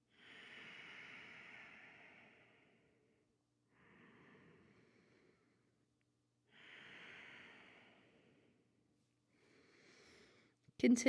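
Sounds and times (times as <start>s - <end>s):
soft slow breathing: 0.0s - 10.6s.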